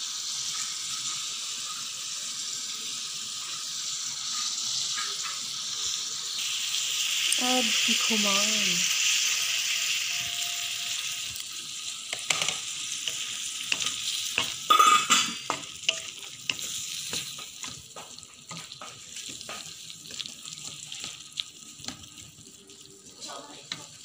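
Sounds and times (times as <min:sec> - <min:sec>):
food sizzling in a wok: 0:00.0 - 0:24.0
spatula clicking on pan: 0:12.1 - 0:20.2.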